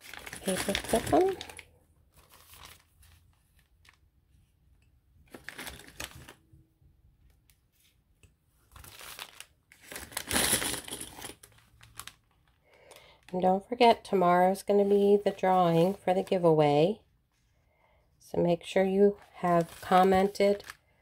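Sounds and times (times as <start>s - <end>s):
paper pages rustling: 0.0s - 4.0s, 5.3s - 6.4s, 8.6s - 10.3s, 11.4s - 12.6s, 19.2s - 20.8s.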